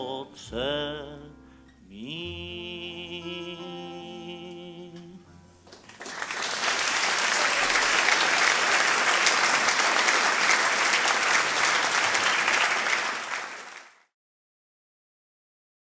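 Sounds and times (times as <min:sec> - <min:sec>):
audience applauding: 0:05.7 - 0:14.1.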